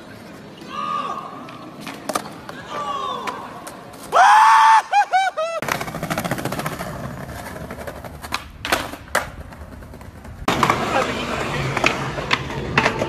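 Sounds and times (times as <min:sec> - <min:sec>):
skateboard clacking on ground: 0:01.4 - 0:04.1, 0:05.6 - 0:13.0
skateboard wheels rolling on tiles: 0:05.5 - 0:13.0.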